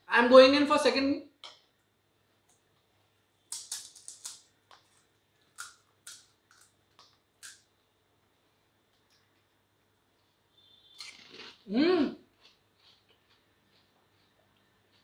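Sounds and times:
crisp shells cracking and crunching: 3.5s - 7.6s.

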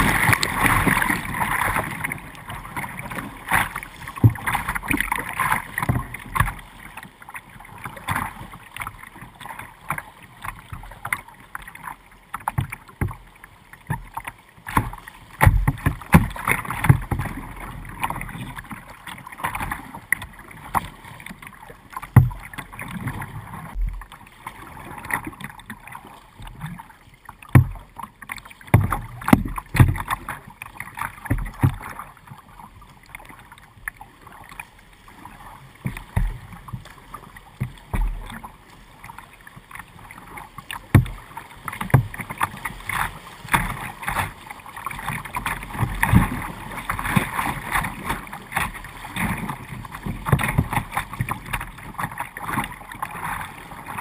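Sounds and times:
river current splashing against kayak: 0.0s - 54.0s
water slapping hull thumps: 2.9s - 6.6s, 14.7s - 17.4s, 22.1s - 22.5s, 27.5s - 27.9s, 28.6s - 30.3s, 31.2s - 31.9s, 40.9s - 51.7s.

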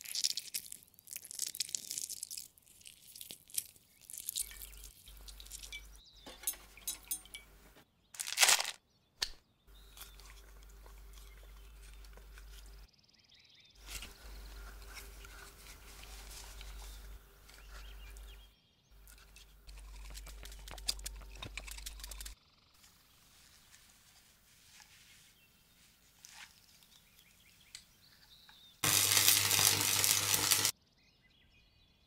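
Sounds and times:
needle crunching into skin: 0.0s - 5.1s, 8.2s - 8.8s.

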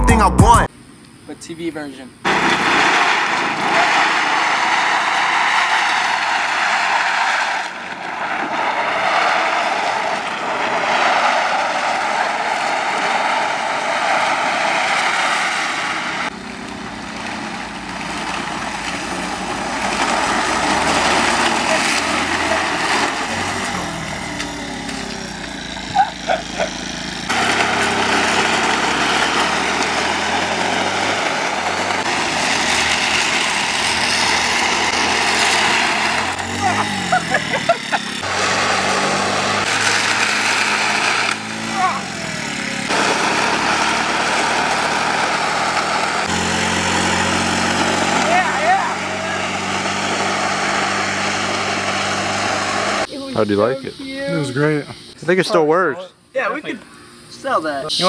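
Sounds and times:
wind and road noise: 0.6s - 53.2s
moped engine running: 16.2s - 53.1s.

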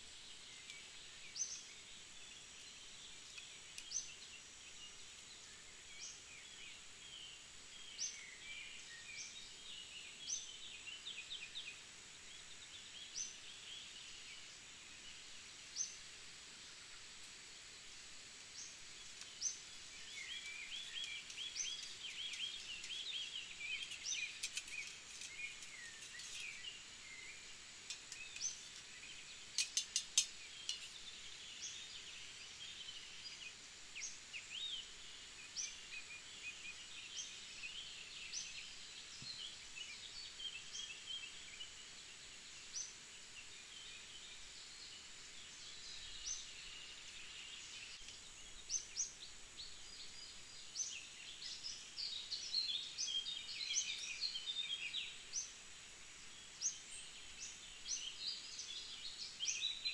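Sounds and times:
birds singing and chirping: 18.5s - 55.6s, 56.3s - 59.9s.

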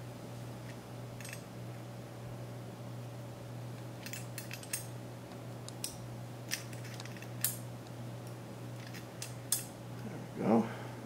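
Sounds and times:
steady low hum: 0.0s - 11.0s
pliers clicking on metal: 5.7s - 7.6s, 8.2s - 9.7s.

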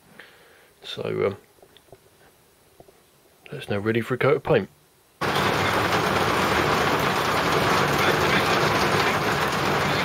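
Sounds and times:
hail pelting on a roof: 5.2s - 10.0s.

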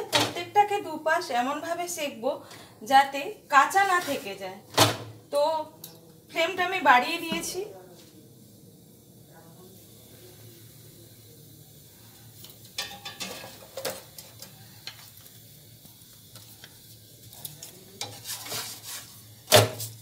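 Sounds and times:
flatbread scraping on pan: 18.0s - 20.0s.

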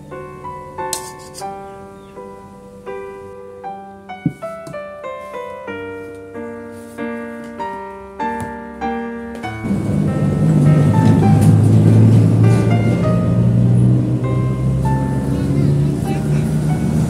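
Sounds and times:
gentle solo piano music: 0.0s - 17.0s
steady low rumbling: 9.6s - 17.0s.

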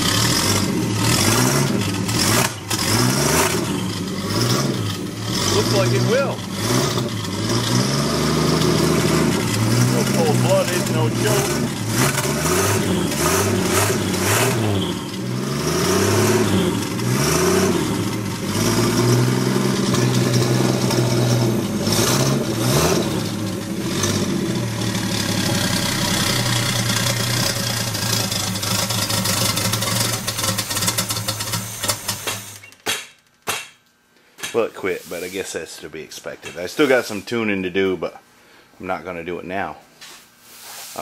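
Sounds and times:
engine revving unevenly: 0.0s - 32.6s.

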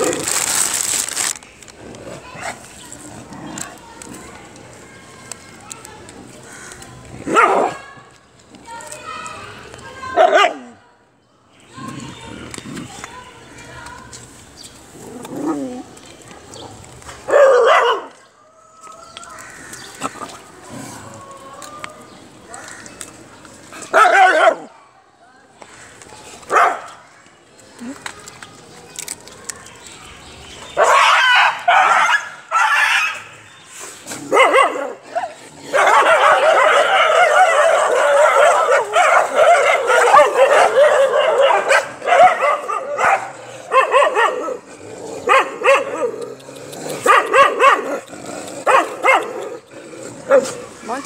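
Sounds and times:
dogs barking and whining: 17.2s - 18.2s, 23.8s - 24.7s, 30.8s - 33.4s, 34.2s - 51.0s.

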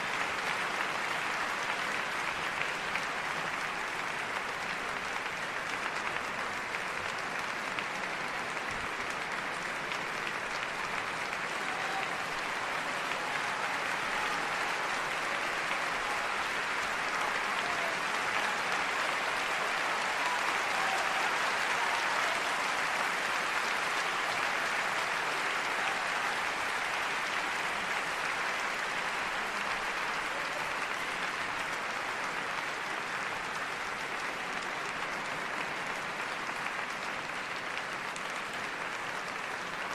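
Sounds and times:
people applauding: 0.0s - 39.9s.

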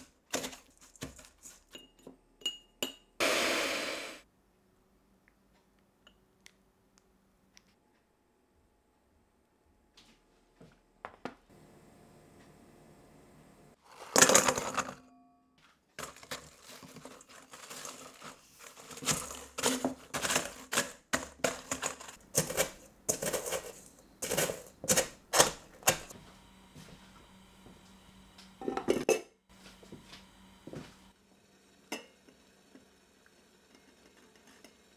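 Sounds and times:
rolling pin crushing biscuits in bowl: 16.0s - 26.1s.

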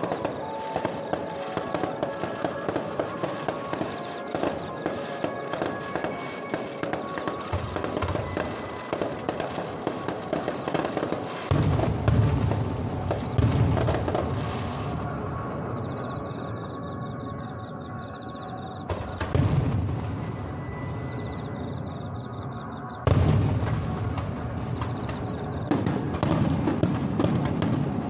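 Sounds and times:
firework crackle: 0.0s - 15.8s, 18.9s - 20.7s, 23.0s - 28.0s
firework shells booming: 5.5s - 14.8s, 23.0s - 28.0s.

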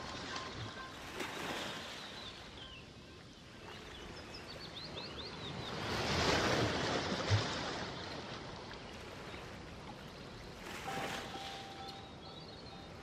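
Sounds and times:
ocean surf washing in: 10.8s - 13.0s.

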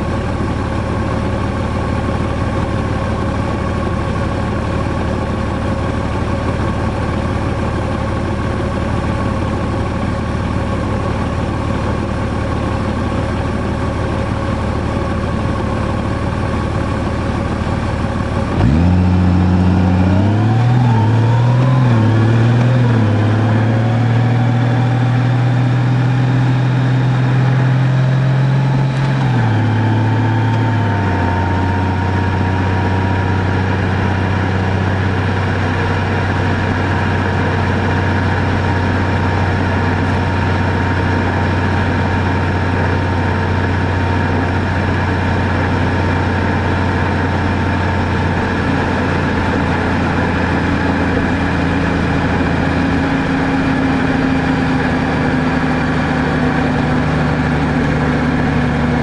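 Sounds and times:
motorcycle engine idling: 0.0s - 21.3s, 28.6s - 59.0s
motorcycle accelerating through gears: 17.6s - 59.0s.

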